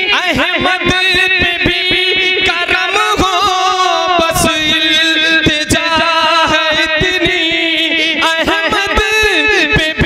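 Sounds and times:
man singing with vibrato: 0:00.0 - 0:10.0.

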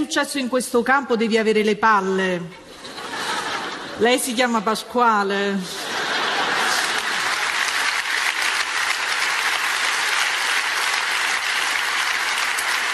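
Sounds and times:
audience applauding: 0:06.0 - 0:12.9.

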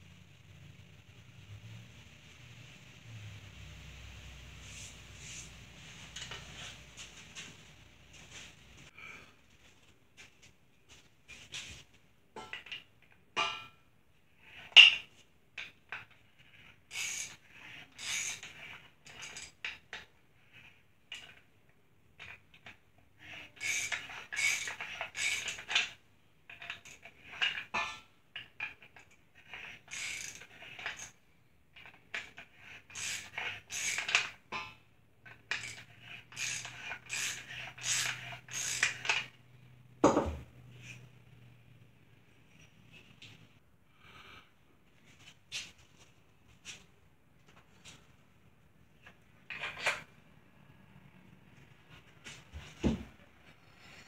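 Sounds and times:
ratchet wrench clicking: 0:16.9 - 0:17.4, 0:18.0 - 0:18.4, 0:23.6 - 0:25.8, 0:29.9 - 0:31.1, 0:32.9 - 0:34.3, 0:35.5 - 0:39.3.

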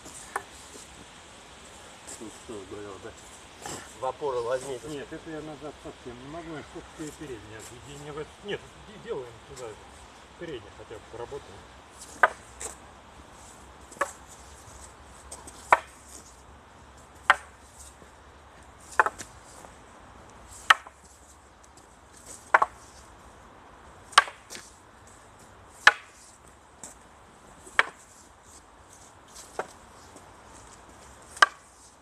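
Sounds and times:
wooden staffs clacking: 0:12.0 - 0:12.8, 0:13.9 - 0:14.2, 0:15.3 - 0:16.2, 0:17.2 - 0:18.0, 0:18.9 - 0:19.4, 0:20.6 - 0:21.0, 0:21.7 - 0:22.8, 0:24.1 - 0:24.7, 0:25.8 - 0:26.2, 0:27.6 - 0:28.1, 0:29.3 - 0:30.2, 0:31.3 - 0:32.0.

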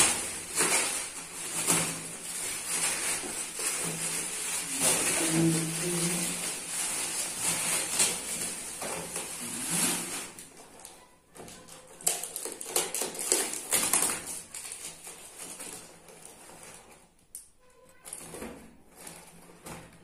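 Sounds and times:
cardboard box scraping and crackling: 0:00.0 - 0:10.7
bubble wrap rustling and crinkling: 0:00.0 - 0:17.3, 0:18.0 - 0:20.0.

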